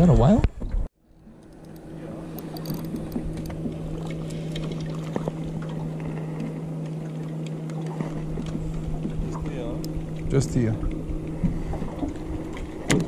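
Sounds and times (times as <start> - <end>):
boat engine humming: 0.0 - 13.0
water lapping against hull: 0.0 - 13.0
fishing tackle clicks: 1.4 - 3.6.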